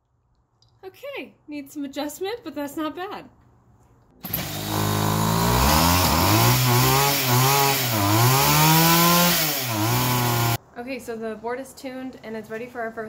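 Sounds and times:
small two-stroke engine revving: 0:04.2 - 0:10.6.

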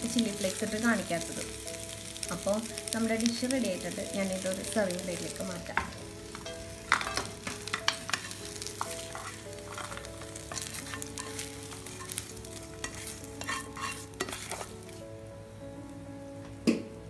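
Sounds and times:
light oil sizzle: 0:00.0 - 0:16.8
metal spoon scraping iron pan: 0:06.3 - 0:12.2, 0:12.8 - 0:15.0.

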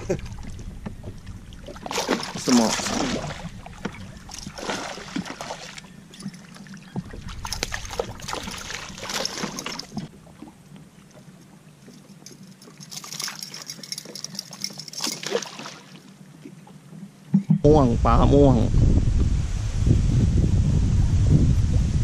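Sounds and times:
water splashing and sloshing: 0:00.0 - 0:17.6.

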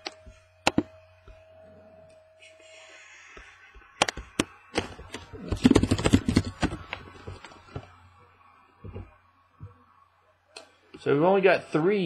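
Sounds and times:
sharp taps and knocks: 0:03.4 - 0:07.9.

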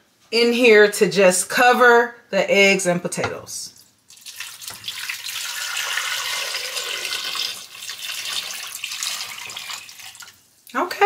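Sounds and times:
water pouring into a pot: 0:04.1 - 0:10.8.

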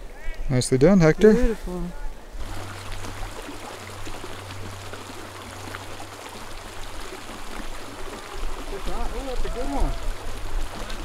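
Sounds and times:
creek trickling: 0:00.0 - 0:11.0
low steady hum: 0:00.8 - 0:08.7.

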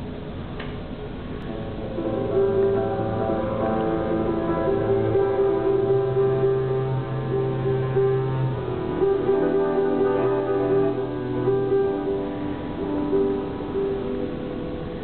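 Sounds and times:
grand piano chords: 0:01.0 - 0:15.0
bowed double bass: 0:01.4 - 0:13.2.

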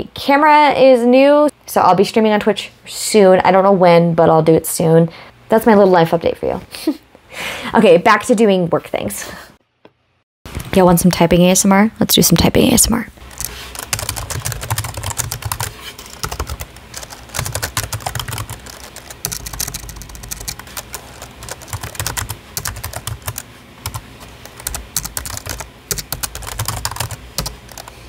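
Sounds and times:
typing on computer keyboard: 0:13.3 - 0:28.0.

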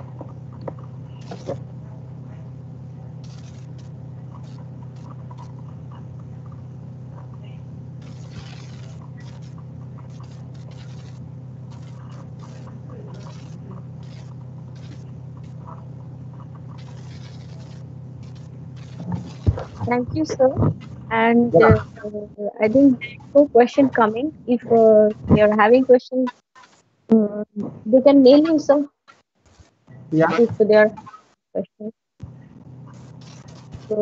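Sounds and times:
short bursts of noise: 0:00.0 - 0:22.1, 0:32.2 - 0:34.0
low hum: 0:00.0 - 0:28.9, 0:29.9 - 0:31.2, 0:32.2 - 0:34.0.

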